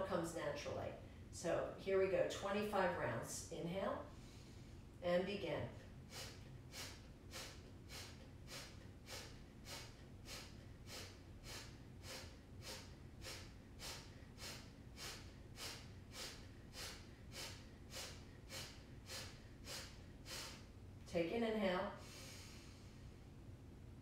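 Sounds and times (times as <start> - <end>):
woman exhaling sharply through nose: 6.1 - 20.7, 22.0 - 23.0.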